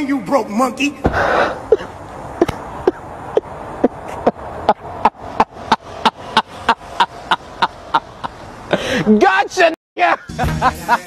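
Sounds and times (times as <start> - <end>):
man laughing hard: 1.4 - 9.2, 10.0 - 11.0.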